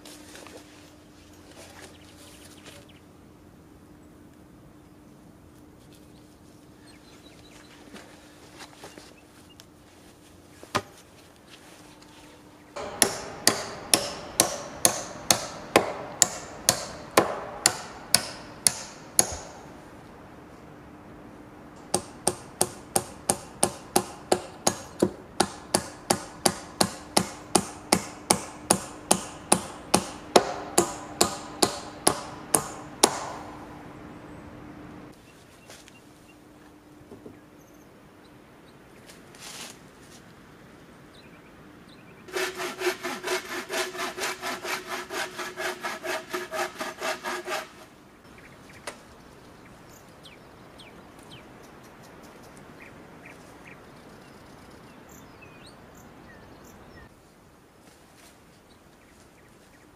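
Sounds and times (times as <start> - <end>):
hammer blows on wood: 12.8 - 19.7, 21.9 - 33.6.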